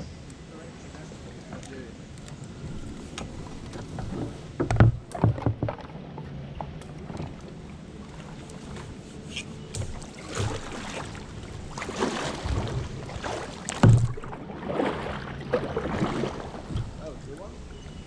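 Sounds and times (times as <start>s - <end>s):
kayak paddle splashing: 2.5s - 18.0s
sharp thump: 13.8s - 14.2s.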